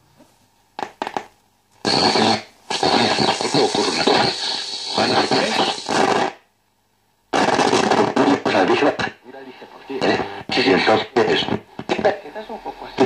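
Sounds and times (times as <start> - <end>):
radio playing a station: 1.8 - 6.4, 7.3 - 13.0.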